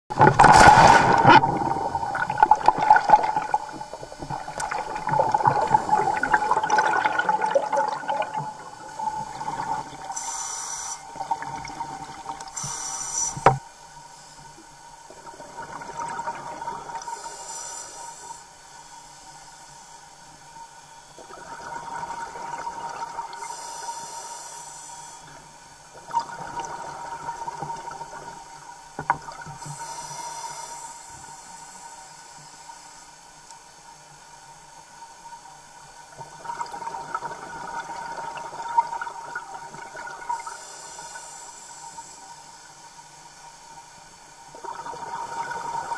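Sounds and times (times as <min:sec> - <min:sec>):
bubbling exhale underwater: 0:00.1 - 0:10.1
steady faint tone: 0:00.2 - 0:45.9
hissing regulator inhales: 0:10.1 - 0:11.2, 0:12.5 - 0:13.5, 0:17.1 - 0:18.5, 0:23.4 - 0:25.4, 0:29.6 - 0:33.2.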